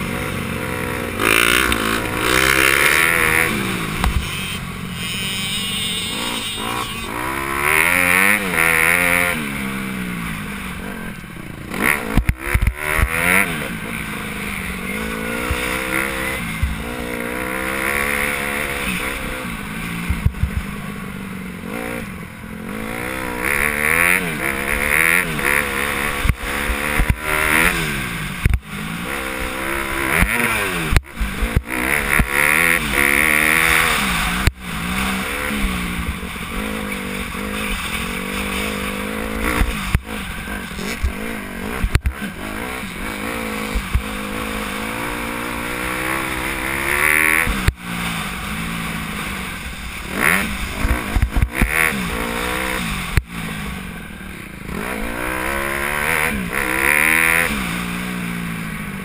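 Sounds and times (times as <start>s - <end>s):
dirt bike engine revving: 0.0s - 21.0s, 21.6s - 59.0s
bike hitting bumps: 20.0s - 20.8s.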